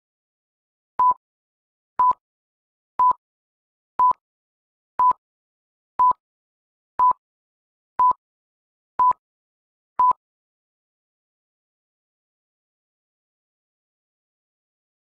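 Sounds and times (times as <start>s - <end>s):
countdown beeps: 2.0s - 2.2s.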